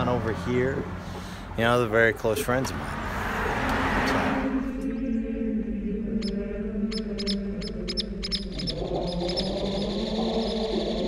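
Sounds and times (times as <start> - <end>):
droning low music: 4.5 - 11.0.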